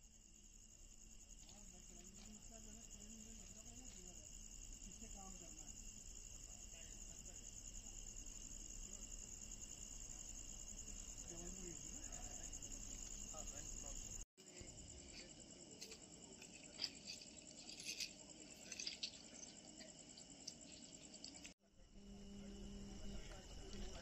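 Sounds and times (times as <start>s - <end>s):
insects chirring: 0.0s - 24.0s.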